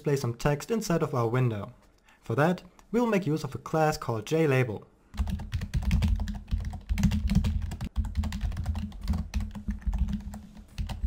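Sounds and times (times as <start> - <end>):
typing on computer keyboard: 5.2 - 11.0.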